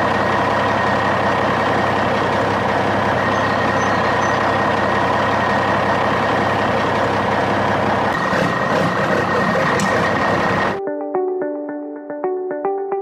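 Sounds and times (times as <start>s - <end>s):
heavy truck driving slowly: 0.0s - 10.8s
sharp clicks: 9.5s - 10.1s.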